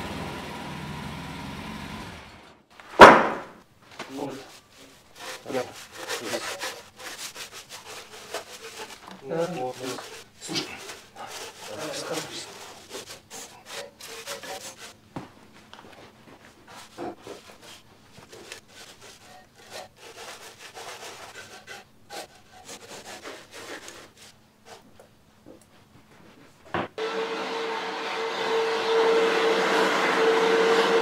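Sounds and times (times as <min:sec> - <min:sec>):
broom sweeping sawdust off steel: 0:04.1 - 0:15.0, 0:16.6 - 0:24.8.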